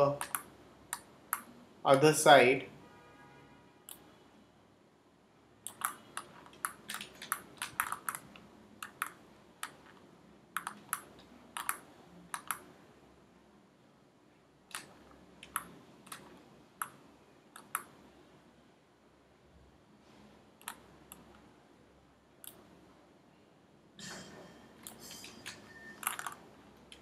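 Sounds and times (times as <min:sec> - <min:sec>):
computer mouse and keyboard clicks: 0:00.1 - 0:01.6, 0:05.6 - 0:12.7, 0:14.7 - 0:18.0, 0:20.6 - 0:21.5, 0:24.8 - 0:27.0.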